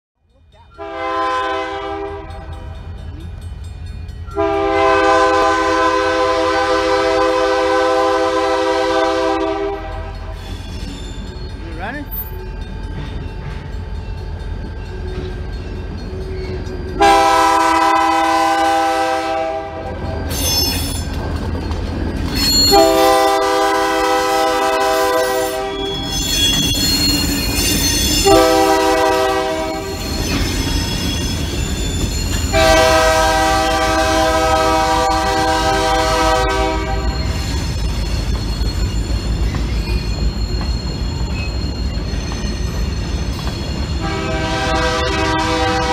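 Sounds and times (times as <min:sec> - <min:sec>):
train rumbling past: 0:00.2 - 0:45.9
locomotive air horn blasts: 0:00.8 - 0:02.3, 0:04.4 - 0:10.2, 0:17.0 - 0:20.0, 0:22.7 - 0:25.9, 0:28.2 - 0:30.0, 0:32.5 - 0:37.3, 0:44.0 - 0:45.9.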